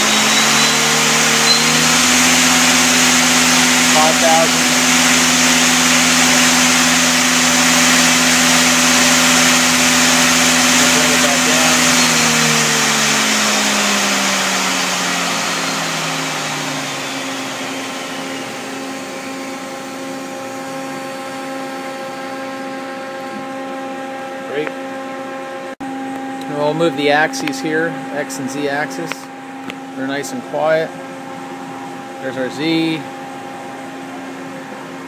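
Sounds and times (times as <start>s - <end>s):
lathe spindle whine: 0.0s - 24.5s
steady hum: 0.0s - 35.0s.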